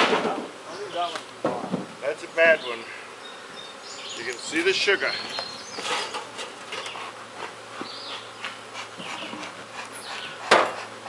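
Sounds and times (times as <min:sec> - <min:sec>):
honeybees buzzing: 0:00.0 - 0:11.0
wooden hive boxes knocking: 0:01.1 - 0:02.0.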